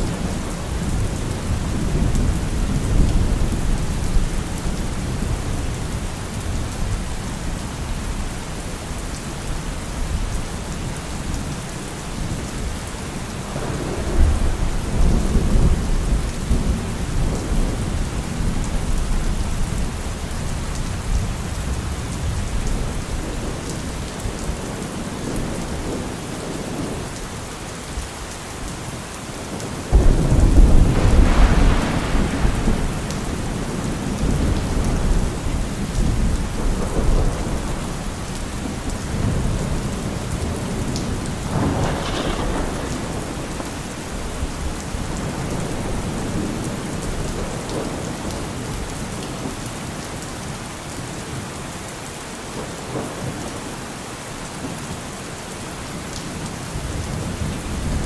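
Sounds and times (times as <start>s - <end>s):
heavy rain: 0.0s - 58.0s
thunder clap and rumble: 13.5s - 20.1s, 29.6s - 49.6s.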